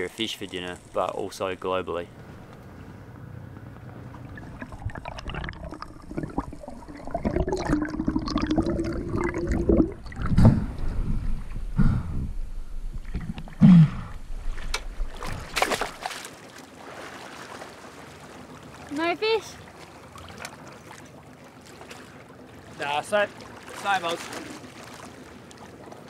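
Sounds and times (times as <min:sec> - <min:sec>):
sea water gurgling: 0:00.0 - 0:01.8, 0:03.9 - 0:26.0
loud water splashes: 0:14.4 - 0:25.7.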